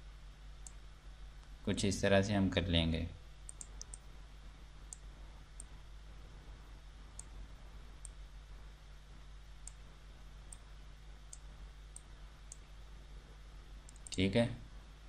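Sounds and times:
faint low hum: 0.0s - 15.0s
computer mouse clicking: 3.5s - 4.0s, 11.3s - 12.7s, 13.9s - 14.2s.

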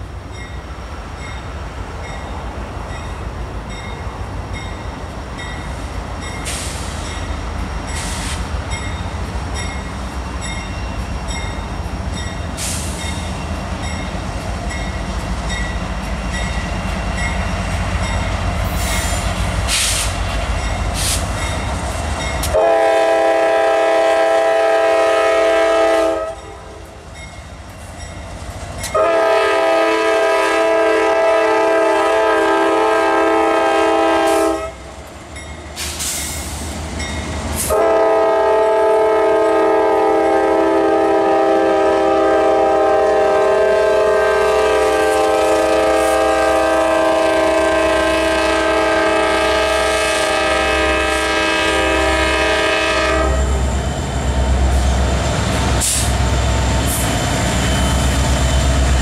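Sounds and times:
freight train rumbling past: 0.0s - 59.0s
train wheels clicking: 2.0s - 22.7s
train horn blasts: 22.4s - 27.0s, 28.9s - 34.9s, 37.6s - 53.7s.

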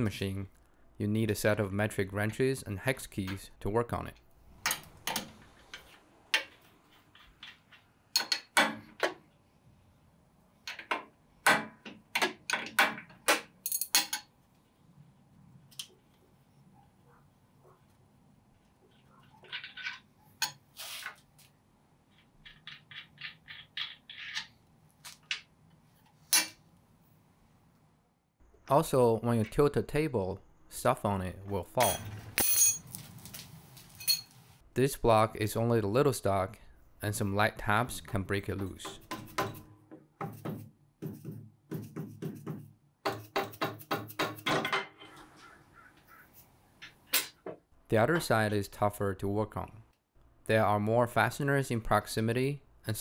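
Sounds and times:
metal nuts and washers clicking: 19.4s - 20.6s, 22.1s - 25.5s.

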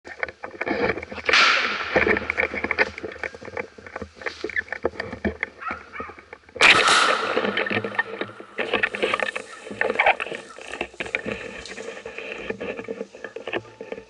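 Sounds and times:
dense brushing rustle: 0.2s - 14.0s
footsteps crunching through dry leaves: 7.2s - 12.4s.

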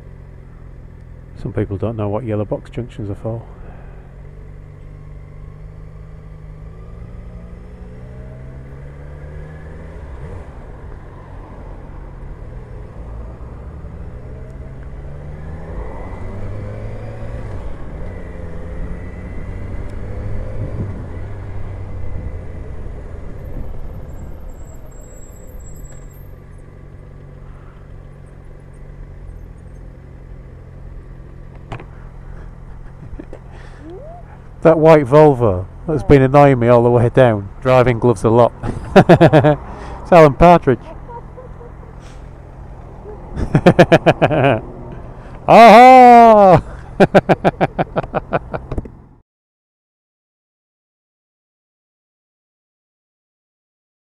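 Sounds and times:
motorcycle engine revving: 4.2s - 11.4s, 12.1s - 23.4s.

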